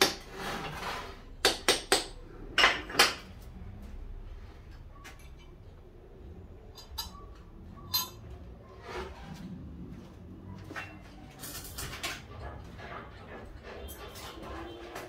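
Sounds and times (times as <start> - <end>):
metal scraping and rattling: 0.0 - 1.4, 6.7 - 15.0
metal objects clinking: 6.7 - 8.3, 10.8 - 12.5.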